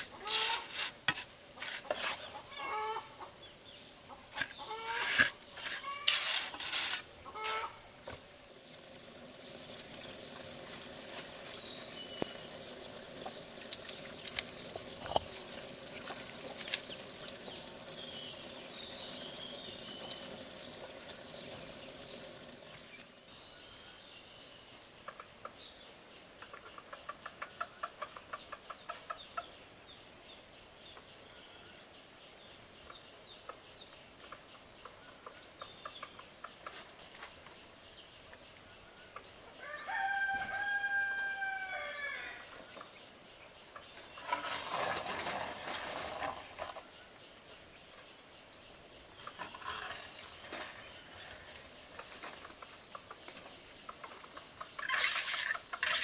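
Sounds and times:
chickens clucking: 0:01.6 - 0:03.4, 0:04.1 - 0:06.1, 0:07.2 - 0:08.2, 0:26.4 - 0:29.5, 0:51.2 - 0:56.0
steady hiss: 0:03.2 - 0:23.5.

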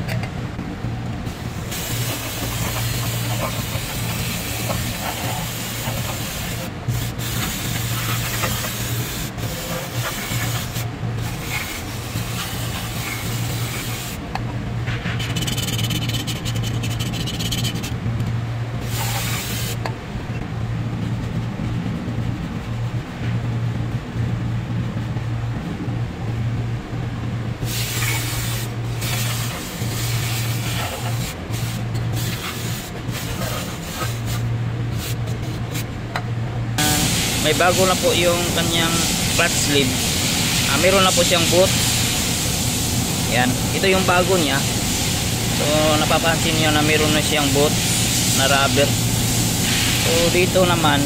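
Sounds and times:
low hum: 0:00.0 - 0:37.4
compressed air spray gun hissing: 0:01.3 - 0:14.2, 0:18.8 - 0:19.9, 0:27.6 - 0:35.3, 0:36.8 - 0:51.0.

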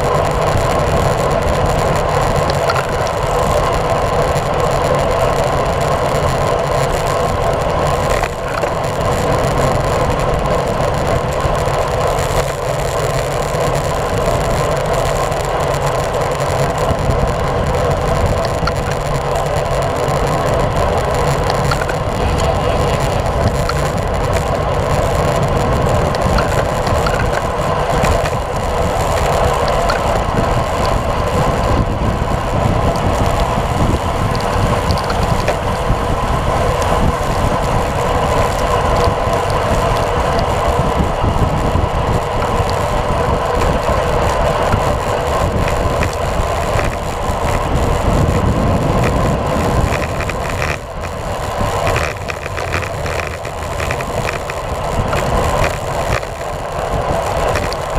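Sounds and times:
tyre noise on wet asphalt: 0:00.0 - 0:57.9
wind rushing over microphone: 0:00.0 - 0:57.9.

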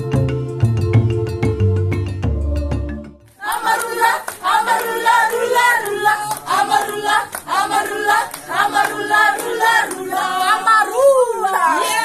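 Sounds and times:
choir singing: 0:02.8 - 0:12.0.

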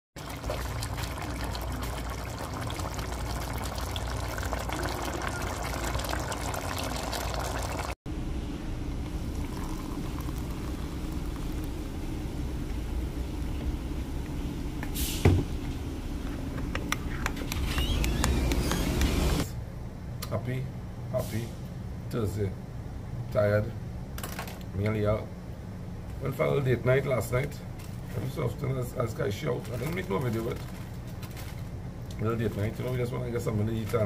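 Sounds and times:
curry bubbling in pot: 0:00.2 - 0:08.0, 0:09.2 - 0:11.8
hot water pouring into mug: 0:00.2 - 0:08.0, 0:09.2 - 0:12.0.

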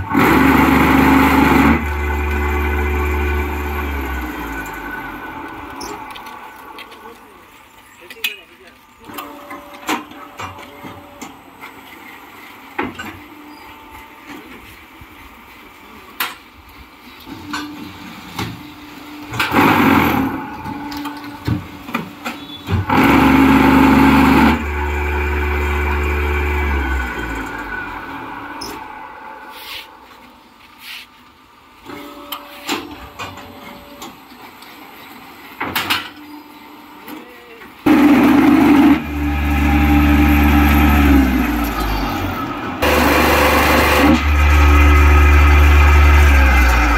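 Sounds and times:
loud noisy vibrator burst: 0:00.0 - 0:06.1, 0:22.7 - 0:29.5, 0:37.9 - 0:42.2, 0:42.8 - 0:46.9
hydraulic hum: 0:00.0 - 0:07.8, 0:17.2 - 0:34.2, 0:37.9 - 0:46.9
motor whine: 0:37.9 - 0:46.9.

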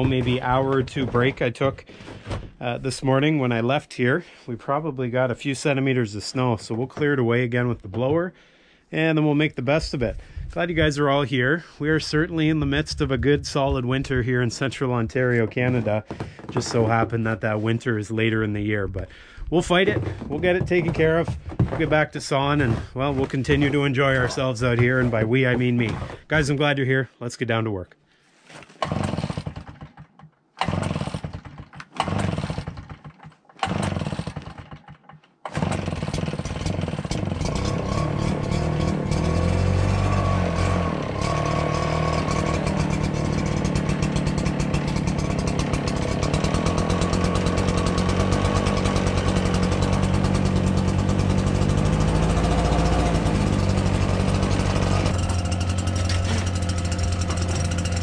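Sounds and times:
leaf blower engine: 0:00.0 - 0:02.6, 0:19.1 - 0:26.4, 0:28.8 - 0:29.9, 0:30.6 - 0:34.8, 0:35.5 - 0:58.0.

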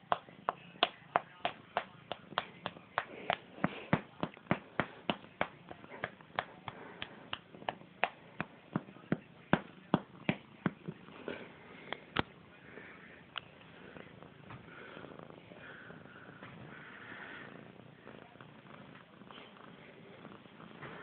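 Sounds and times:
fingers flicking cat fur: 0:00.0 - 0:12.3.

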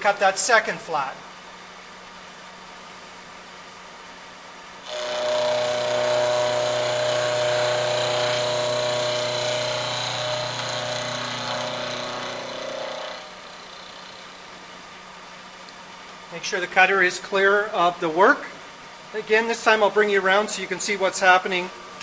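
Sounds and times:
milling cutter whine: 0:04.8 - 0:14.4
spindle motor hum: 0:04.8 - 0:14.6.

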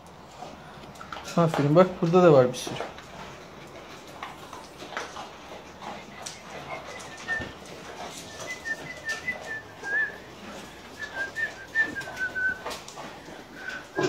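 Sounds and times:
dogs eating from steel bowls: 0:00.0 - 0:14.0
dog whining: 0:06.2 - 0:14.0.

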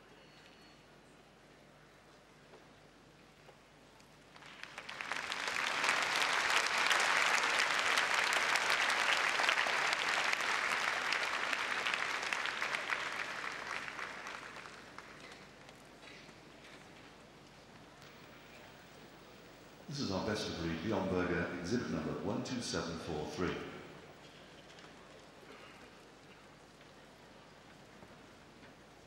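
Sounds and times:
audience applauding: 0:04.3 - 0:15.8.

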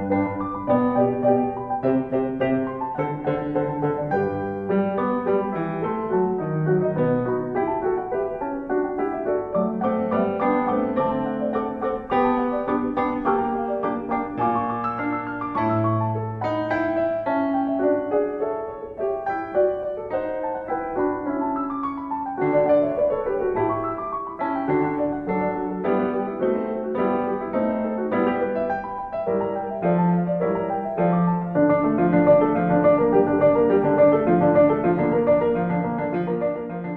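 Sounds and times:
piano music: 0:00.0 - 0:36.9.

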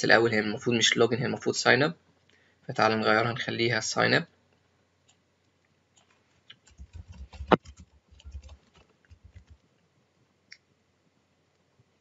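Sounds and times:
keyboard typing clicks: 0:06.0 - 0:09.6.

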